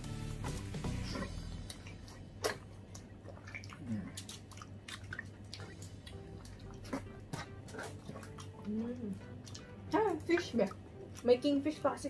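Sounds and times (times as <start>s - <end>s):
chewing and biting food: 0.4s - 11.6s
wet mouth clicks and smacks: 1.2s - 9.8s.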